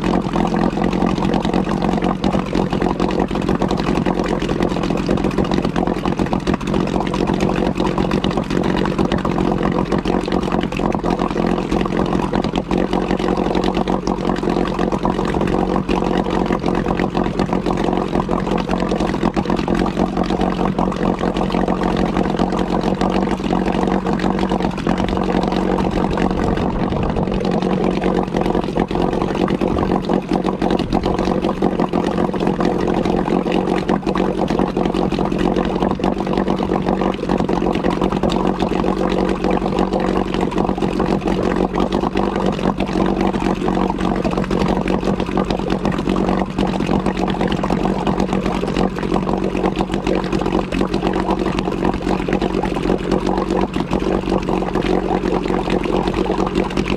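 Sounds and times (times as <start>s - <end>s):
outboard motor running: 0.0s - 56.9s.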